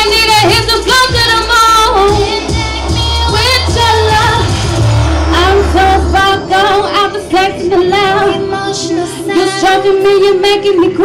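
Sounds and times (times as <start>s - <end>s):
backing music: 0.0s - 11.0s
woman singing into microphone: 0.0s - 11.0s
low bass note: 2.7s - 8.6s.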